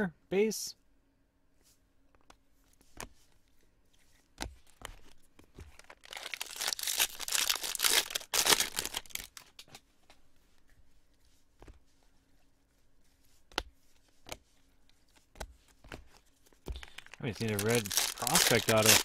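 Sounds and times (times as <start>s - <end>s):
foil wrapper tearing: 5.8s - 9.5s, 16.8s - 19.0s
cards being handled clicking: 15.0s - 19.0s.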